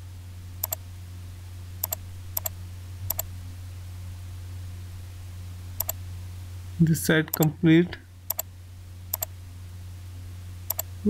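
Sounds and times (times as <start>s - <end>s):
low electrical hum: 0.0s - 11.0s
computer mouse buttons clicking: 1.8s - 2.5s, 3.1s - 3.3s, 8.3s - 8.5s, 9.1s - 9.3s, 10.7s - 10.9s.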